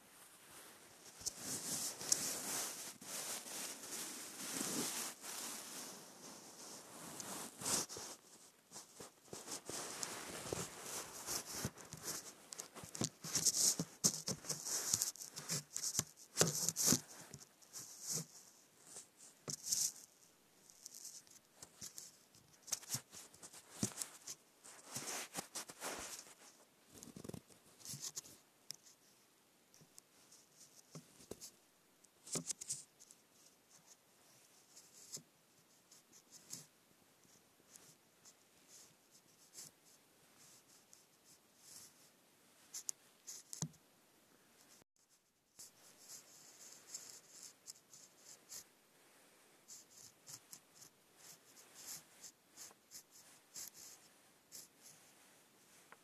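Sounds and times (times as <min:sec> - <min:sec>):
faint scratching and tapping: 0:00.0 - 0:43.8, 0:44.6 - 0:56.0
phone handling scratching and rustling: 0:08.8 - 0:18.3, 0:20.8 - 0:28.3.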